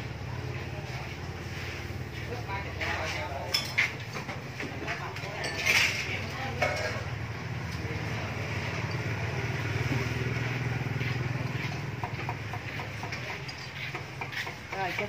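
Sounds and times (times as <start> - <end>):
motorbike engine passing: 6.0 - 13.5.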